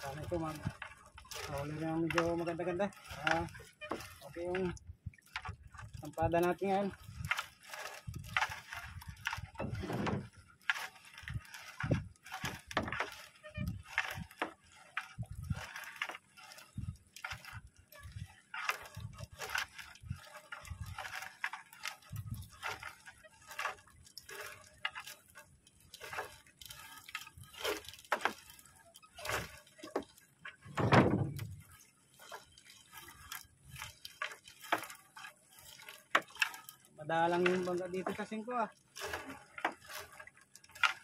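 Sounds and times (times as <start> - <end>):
water dripping and splashing: 0.0 - 41.0
thud in boat: 9.6 - 10.3, 30.7 - 31.6.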